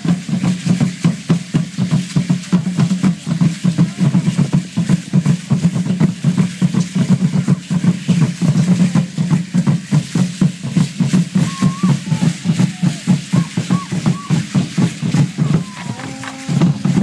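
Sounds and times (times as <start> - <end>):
large drums beaten in dance rhythm: 0.0 - 17.0
ankle rattles shaking: 7.6 - 17.0.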